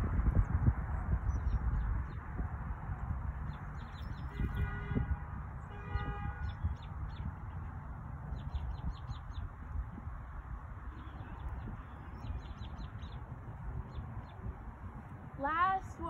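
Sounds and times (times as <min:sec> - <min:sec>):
wind rumble on microphone: 0:00.0 - 0:16.0
small birds chirping: 0:03.4 - 0:04.7, 0:06.3 - 0:14.7.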